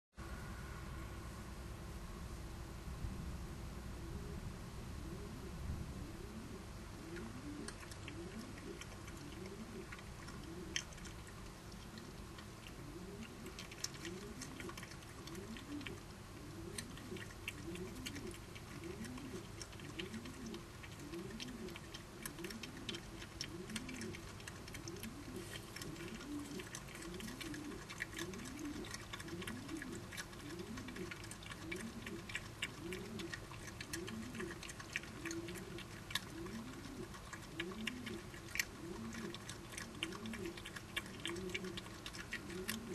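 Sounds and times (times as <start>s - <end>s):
low wavering hum: 0.2s - 14.7s
badgers chewing and crunching food: 7.0s - 42.9s.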